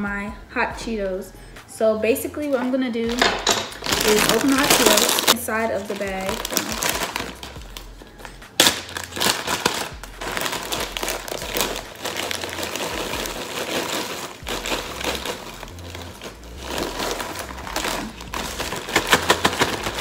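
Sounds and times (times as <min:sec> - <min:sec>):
plastic bags crinkling: 0:02.5 - 0:20.0
snacks pouring into bag: 0:03.8 - 0:07.9, 0:08.6 - 0:20.0.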